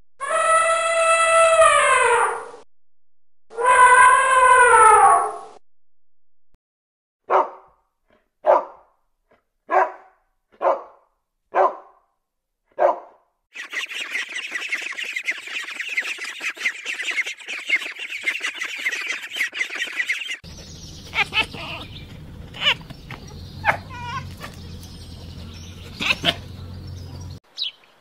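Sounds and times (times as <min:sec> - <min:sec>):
dog barking: 0:07.2 - 0:07.8, 0:08.4 - 0:08.9, 0:09.7 - 0:12.1, 0:12.7 - 0:13.2, 0:23.6 - 0:27.4
ducklings peeping: 0:13.6 - 0:27.7.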